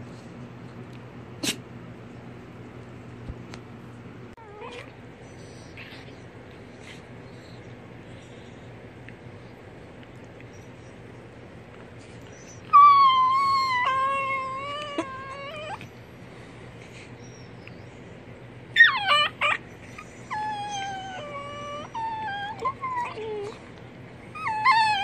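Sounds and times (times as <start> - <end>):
dog whining: 4.4 - 8.5, 12.2 - 16.0, 16.9 - 18.1, 18.7 - 25.0
dog yelping: 12.3 - 15.9, 18.7 - 23.6, 24.3 - 25.0.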